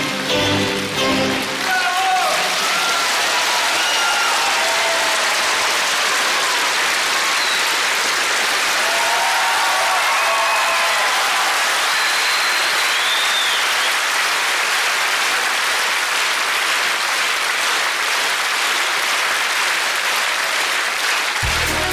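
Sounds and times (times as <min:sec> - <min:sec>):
audience applauding: 0:00.0 - 0:21.9.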